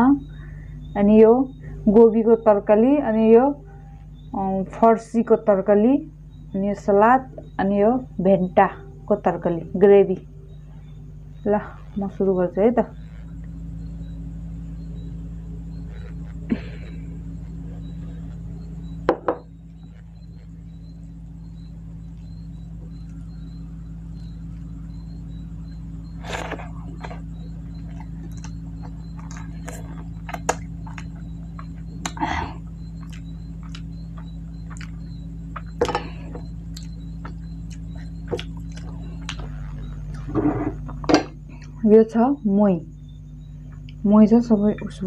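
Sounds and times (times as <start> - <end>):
low electrical hum: 0.0 - 45.0
chewing and mixing rice by hand: 26.2 - 41.7.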